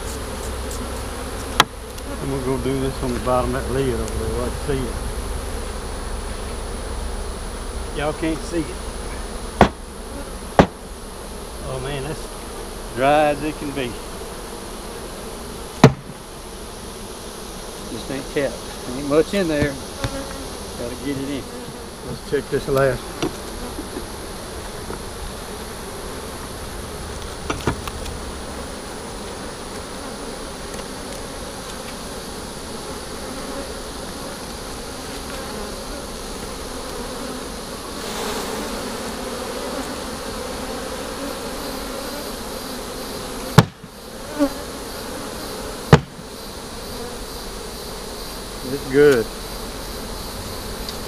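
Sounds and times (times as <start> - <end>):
bees buzzing: 0.0 - 51.0
sharp knocks: 9.6 - 9.9, 10.6 - 10.8, 15.8 - 16.2, 43.6 - 43.9, 45.9 - 46.3.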